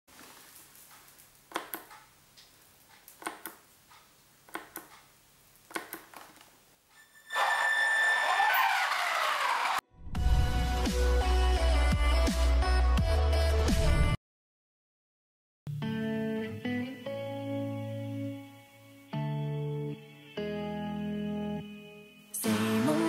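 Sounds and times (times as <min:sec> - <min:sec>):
toggle switch clicks: 0:03.2 - 0:05.1, 0:05.7 - 0:06.2.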